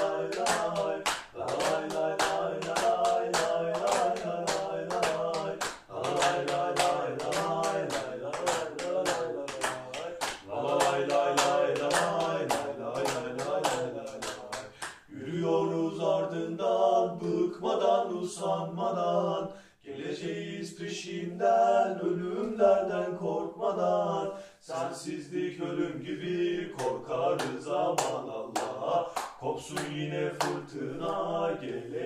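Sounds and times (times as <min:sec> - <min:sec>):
hand claps in time: 0:00.0 - 0:15.1, 0:26.8 - 0:30.6
men singing a terrace chant: 0:00.0 - 0:32.0.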